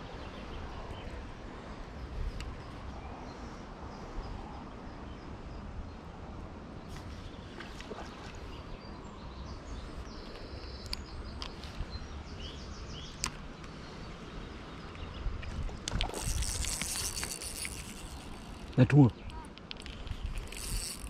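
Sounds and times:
wind rumble on microphone: 14.0 - 21.0.

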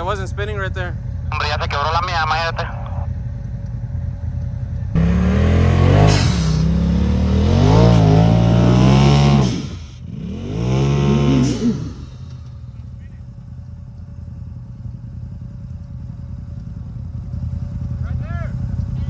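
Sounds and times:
engine revving hard: 5.0 - 12.3.

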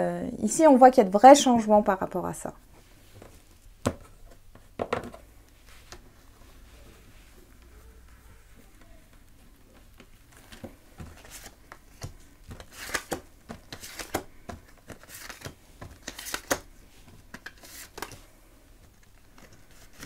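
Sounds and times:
cards swishing and tapping: 8.7 - 20.0.

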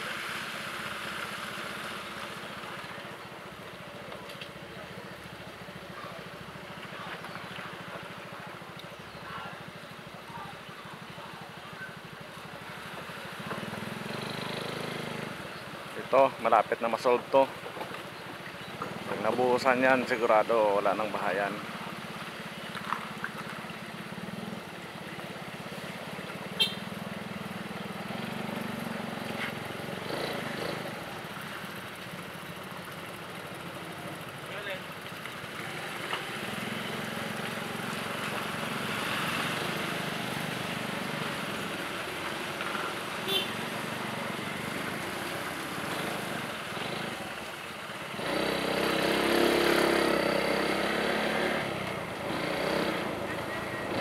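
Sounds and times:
engine and tyre road noise: 0.0 - 54.0.

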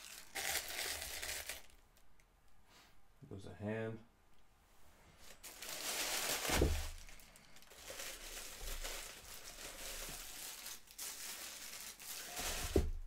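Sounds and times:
packaging crinkling: 0.0 - 1.8, 5.2 - 13.0.

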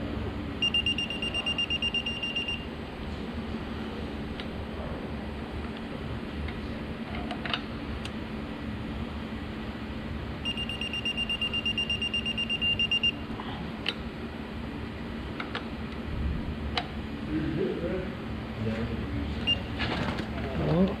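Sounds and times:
steady low hum: 0.0 - 21.0
high-pitched electronic beeping: 0.6 - 2.7, 10.4 - 13.2.

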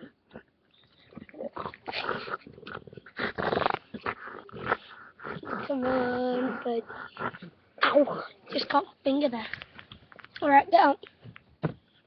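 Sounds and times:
dog growling: 0.0 - 8.8.

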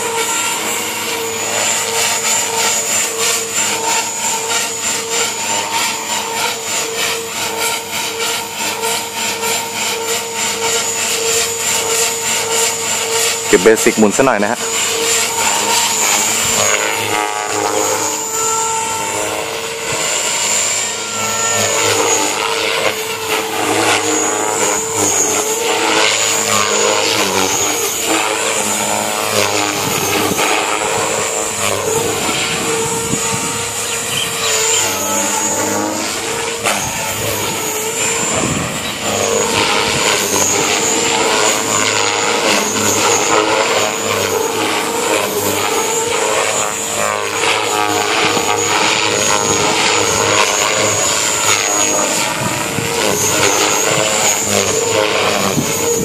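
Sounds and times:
rc helicopter motor whine: 0.0 - 56.0.

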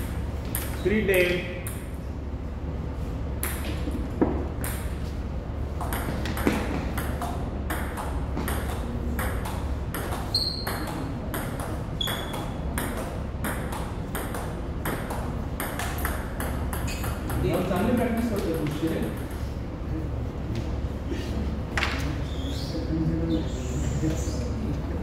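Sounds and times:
high squeaks: 10.3 - 10.9.

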